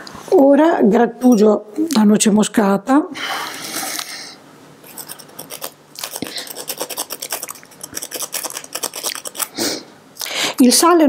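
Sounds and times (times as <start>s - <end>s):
nutmeg grating on metal grater: 4.8s - 9.6s.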